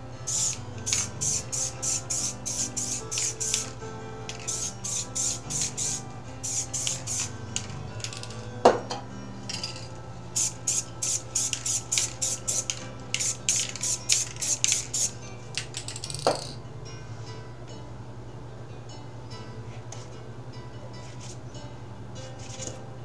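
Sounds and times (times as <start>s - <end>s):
soft background music: 0.0s - 23.0s
spray-paint can hissing: 0.2s - 8.5s, 9.5s - 16.6s.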